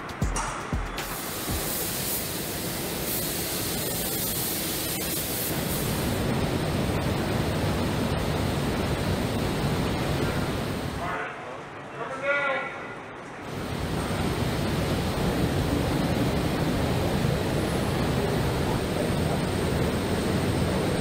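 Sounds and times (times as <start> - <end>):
electronic music: 0.0 - 1.8
steady rushing noise: 0.0 - 11.1, 13.4 - 21.0.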